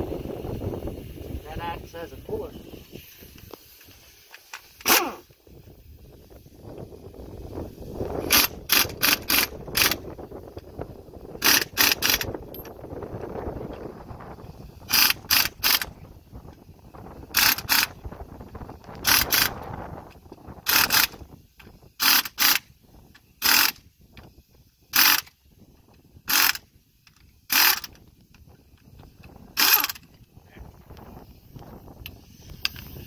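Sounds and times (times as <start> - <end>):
impact driver bursts: 23.4 - 23.8, 29.6 - 30.0.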